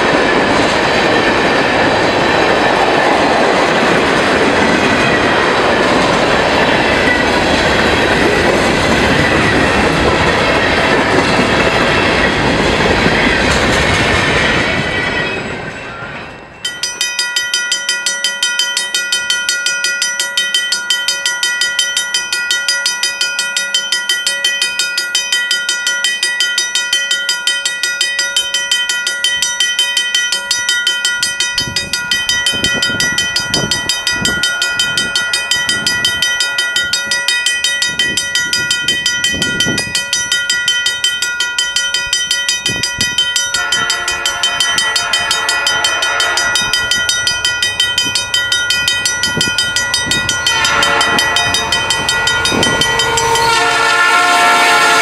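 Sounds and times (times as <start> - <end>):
train wheels clattering over rail joints: 0.0 - 15.8
low thumps of approaching train: 0.0 - 55.0
railroad crossing bell ringing: 0.0 - 55.0.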